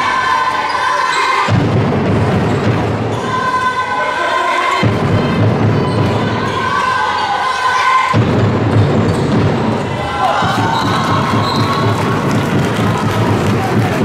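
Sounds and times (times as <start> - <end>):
crowd voices and shouting: 0.0 - 14.0.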